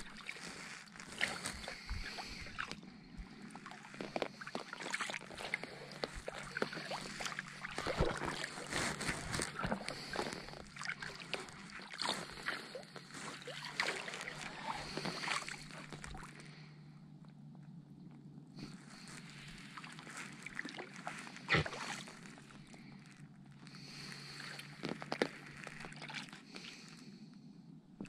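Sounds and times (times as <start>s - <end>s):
kayak paddle splashing: 3.8s - 16.3s, 19.0s - 22.4s.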